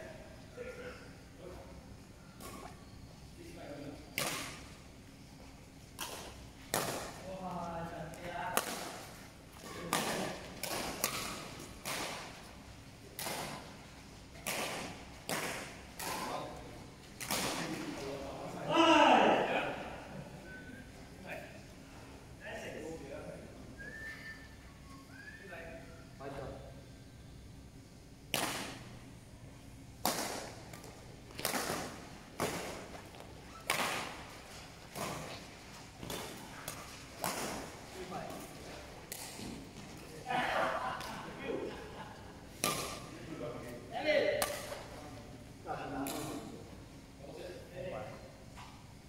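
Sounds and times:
racket hitting shuttlecock: 4.2s - 4.8s, 6.0s - 7.2s, 8.5s - 12.5s, 13.1s - 16.6s, 17.2s - 17.8s, 28.3s - 28.9s, 30.0s - 38.5s, 39.1s - 39.8s, 42.5s - 43.2s, 44.3s - 45.0s.

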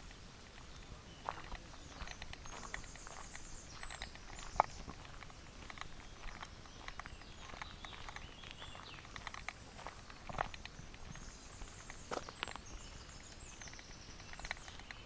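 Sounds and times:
footsteps on gravel: 0.5s - 15.0s
birds trilling: 0.7s - 15.0s.

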